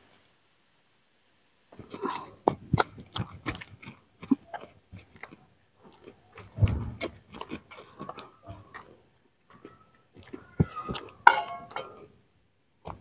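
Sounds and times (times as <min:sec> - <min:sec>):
hands kneading sticky dough: 0:01.8 - 0:11.2.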